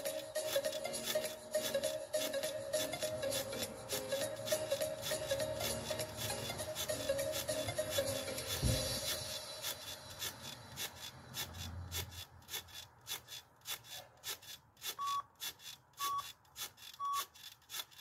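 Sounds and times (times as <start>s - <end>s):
rhythmic rubbing clicks: 0.0s - 18.0s
timer short beeps: 15.0s - 15.3s, 16.0s - 16.3s, 17.0s - 17.3s.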